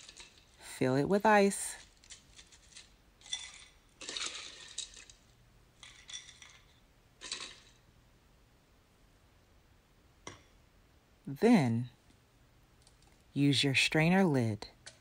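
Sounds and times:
ice cubes clinking in a glass: 1.9 - 7.8.

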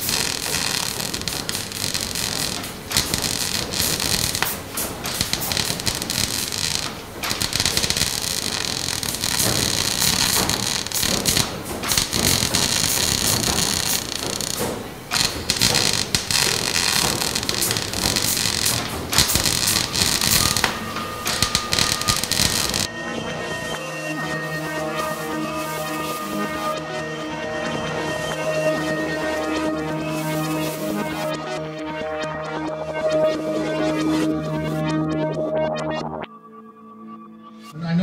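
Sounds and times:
welding arc crackling sizzle: 0.0 - 22.9, 28.4 - 31.3.

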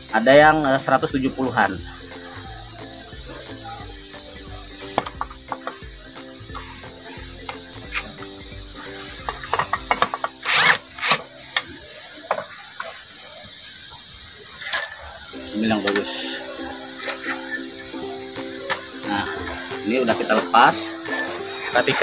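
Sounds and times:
socket wrench clicking: 7.5 - 8.2, 9.2 - 11.7, 14.6 - 15.0, 15.8 - 16.2, 17.0 - 17.8, 18.6 - 19.6, 20.4 - 21.4
steel bolts clinking: 14.6 - 16.3, 17.0 - 17.8, 18.6 - 19.6, 20.2 - 21.4
metal clanks: 17.0 - 17.7, 20.3 - 21.4.

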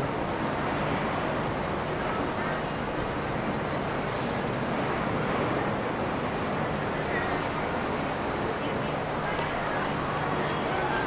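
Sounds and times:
boat engines running: 0.0 - 11.0
water rushing: 0.0 - 11.0.

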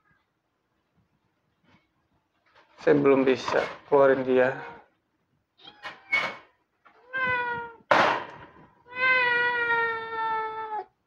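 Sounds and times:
cat meowing: 5.6 - 7.9, 8.8 - 11.0.

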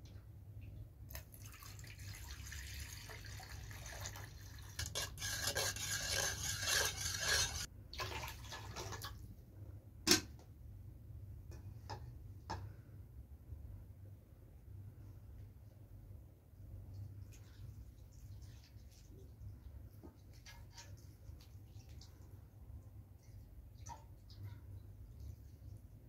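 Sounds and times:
water pouring into metal bowl: 1.1 - 9.1
spoon stirring water: 2.2 - 9.1.

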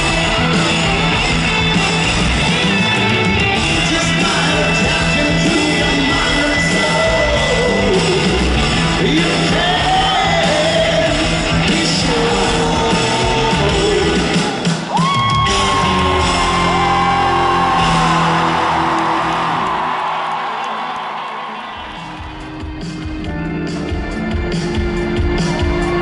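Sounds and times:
live rock band: 0.0 - 20.2, 21.9 - 26.0
man singing: 3.7 - 14.9.

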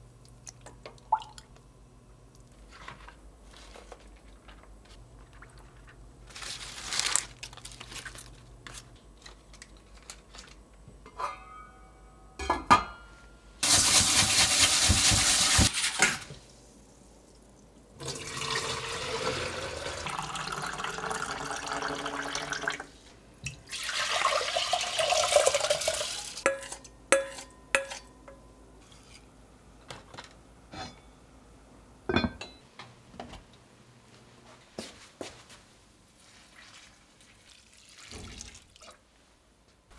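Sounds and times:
utensils and dishes clinking: 9.5 - 13.2, 26.4 - 29.2
tap water running into steel bowl: 18.0 - 22.9, 23.5 - 26.4.

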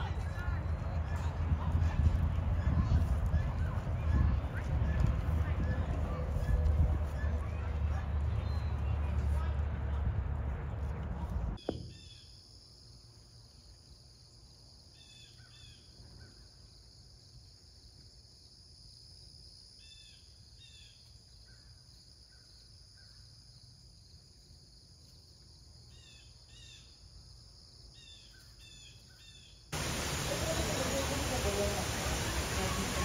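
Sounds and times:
small birds chirping: 2.6 - 9.5
steady high hiss: 29.8 - 33.0.

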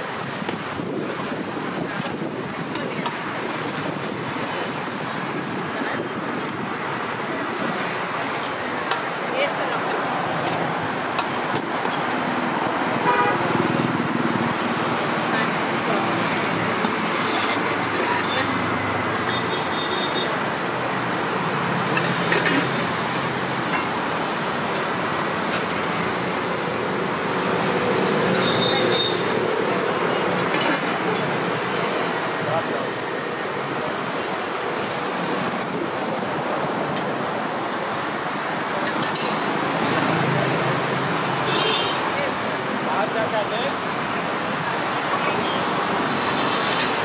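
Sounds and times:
wind on microphone: 0.0 - 7.8
road traffic: 0.0 - 47.0.

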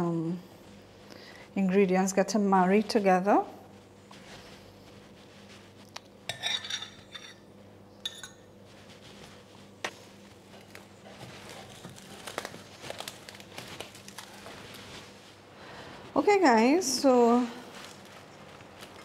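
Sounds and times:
metal spoon clinking on glass: 6.3 - 7.4, 8.0 - 8.5
cling film crinkling: 9.9 - 15.3, 17.6 - 19.0.

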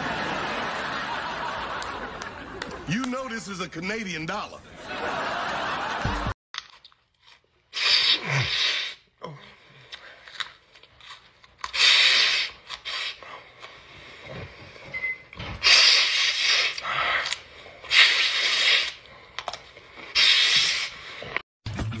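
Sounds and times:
chewing raw broccoli: 6.6 - 8.4, 9.8 - 14.8
woman sniffing: 20.1 - 21.0.

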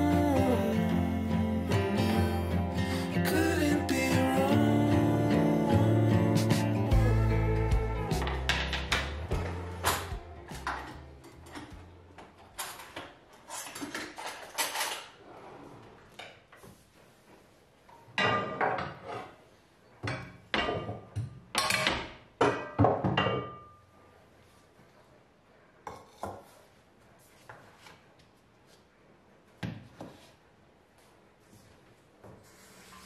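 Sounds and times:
cookware clattering: 20.2 - 23.8.

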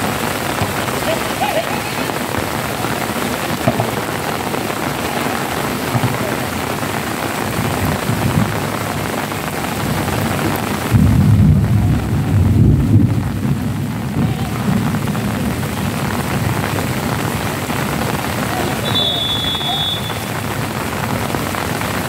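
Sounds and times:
heavy rain falling: 0.0 - 22.0
low rumble of thunder: 9.8 - 18.2.

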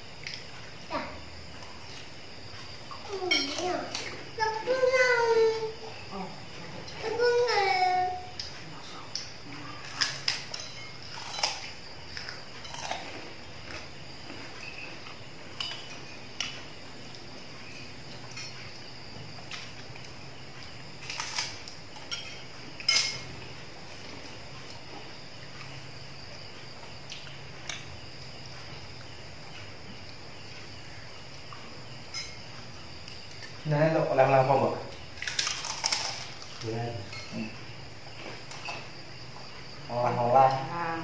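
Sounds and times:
crickets chirring: 0.0 - 41.0
spoons clinking against plates: 3.3 - 3.7, 10.0 - 11.7, 15.6 - 16.0, 18.2 - 18.7, 22.0 - 23.3, 32.1 - 32.5, 37.0 - 37.4.

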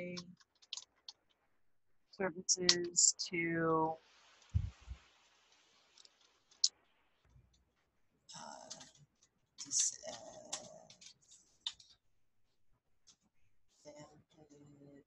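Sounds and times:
computer keyboard clicking: 0.0 - 1.2.

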